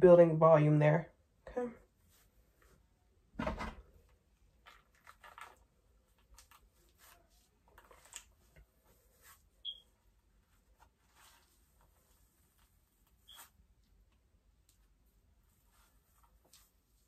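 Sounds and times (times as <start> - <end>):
hairbrush swishing through hair: 13.2 - 13.6.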